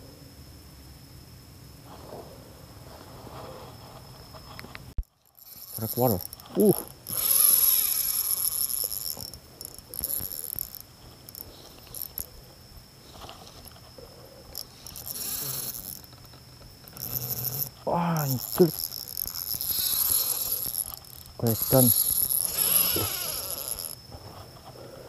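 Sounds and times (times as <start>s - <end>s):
spinning reel whirring and clicking: 5.2s - 12.3s, 14.5s - 24.0s.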